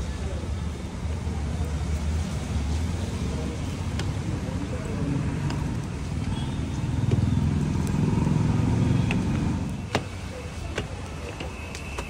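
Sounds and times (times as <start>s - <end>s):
vehicle engine passing by: 7.4s - 9.7s.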